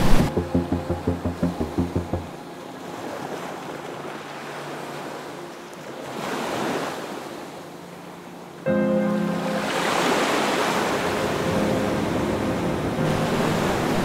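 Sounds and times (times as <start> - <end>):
rhythmic pulsing sound: 0.0 - 2.8
waves breaking on a beach: 0.0 - 14.0.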